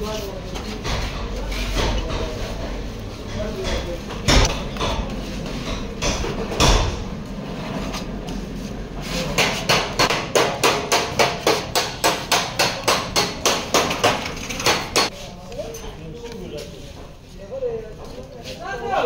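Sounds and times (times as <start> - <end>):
loud knock: 3.6 - 7.1
rapid hammer blows: 9.3 - 15.1.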